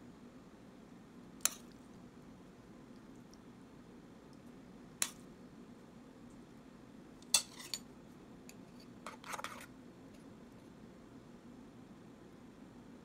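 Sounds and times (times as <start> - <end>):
faint steady hum: 0.0 - 13.0
spoon scraping in metal pot: 7.3 - 7.8, 9.0 - 9.7.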